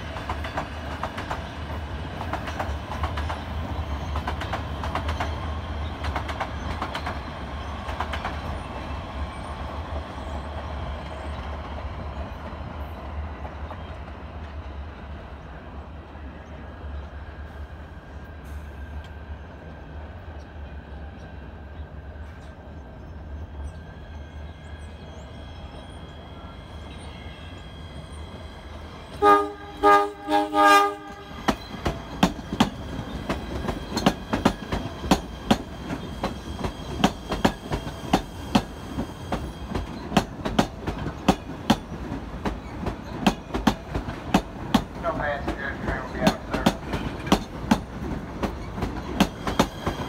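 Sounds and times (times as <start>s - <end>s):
train wheels clickety-clack: 0.0s - 14.8s, 30.8s - 50.0s
train rumble: 0.0s - 50.0s
train horn blasts: 29.1s - 31.5s.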